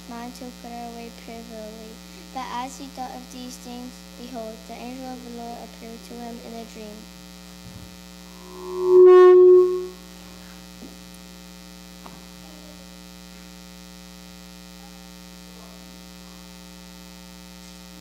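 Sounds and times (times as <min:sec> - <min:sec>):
electrical mains hum: 0:00.0 - 0:18.0
loud held tone: 0:07.6 - 0:10.1.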